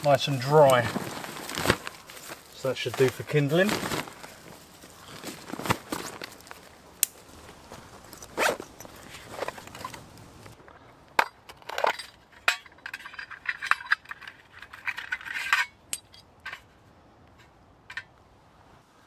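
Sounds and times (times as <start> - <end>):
hand rustling in a bag: 0.0 - 10.5
light metallic clinks: 15.1 - 16.6.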